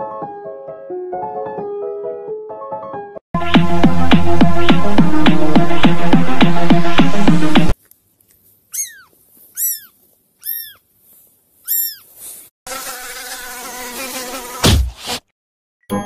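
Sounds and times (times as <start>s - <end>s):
kitten mewing: 8.7s - 10.8s, 11.6s - 12.1s.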